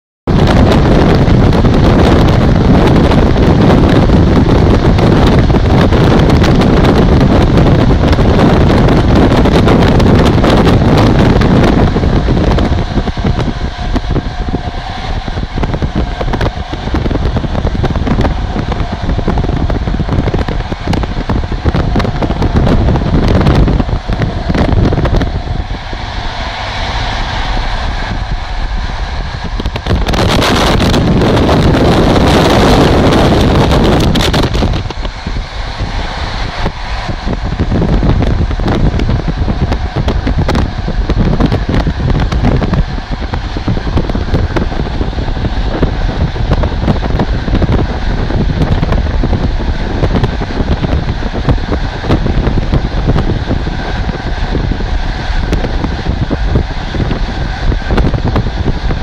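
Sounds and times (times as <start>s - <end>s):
train running on track: 0.3s - 59.0s
wind buffeting microphone: 0.3s - 59.0s.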